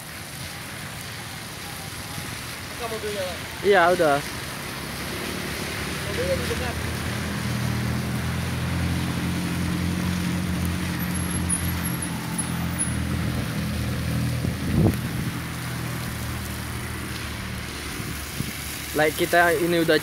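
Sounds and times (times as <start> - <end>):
tyres hissing on wet road: 0.0 - 20.0
car engine hum: 4.8 - 18.5.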